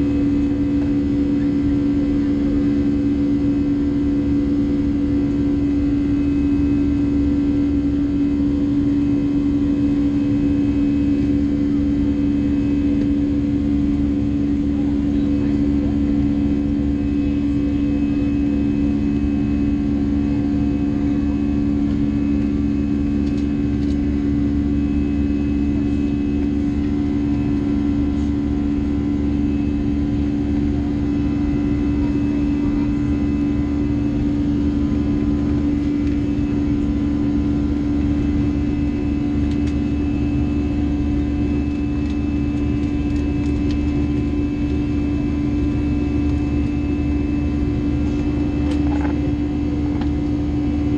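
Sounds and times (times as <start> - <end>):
jet engine drone in cabin: 0.0 - 50.9.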